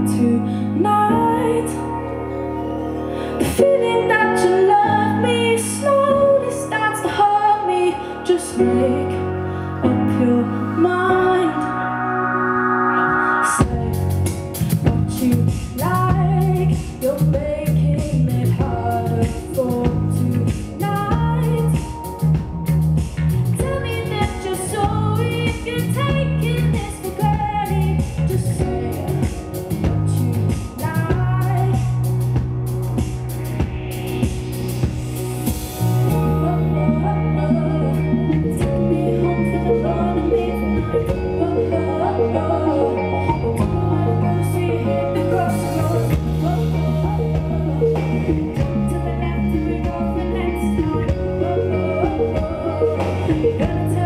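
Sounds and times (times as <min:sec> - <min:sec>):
woman singing into a microphone: 0:00.0 - 0:22.6, 0:23.5 - 0:32.5, 0:36.1 - 0:54.0
bass guitar: 0:00.0 - 0:54.0
electric guitar: 0:00.0 - 0:54.0
drum kit: 0:12.8 - 0:40.0, 0:42.7 - 0:54.0.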